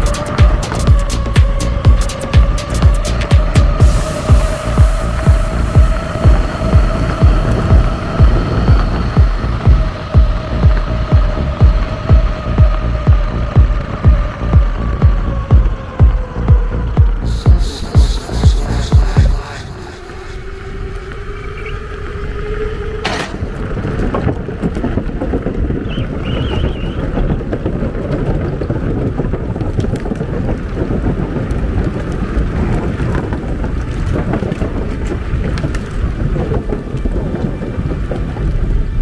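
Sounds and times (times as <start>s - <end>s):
faint rising whine: 0.0s - 24.5s
skateboard wheels rumbling on pavement: 0.0s - 39.0s
wind buffeting microphone: 0.0s - 39.0s.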